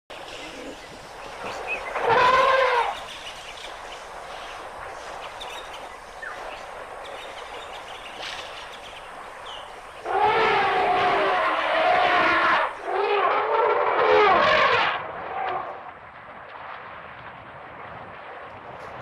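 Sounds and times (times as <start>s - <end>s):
outdoor noise: 0.1s - 19.0s
elephants trumpeting: 1.6s - 3.1s, 10.0s - 15.7s.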